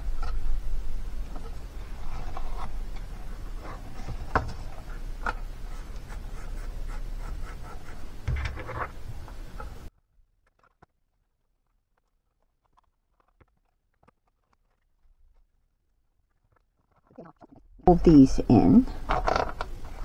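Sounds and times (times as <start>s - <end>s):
low steady rumble: 0.0s - 9.9s
cardstock rubbing and rustling: 1.3s - 9.9s.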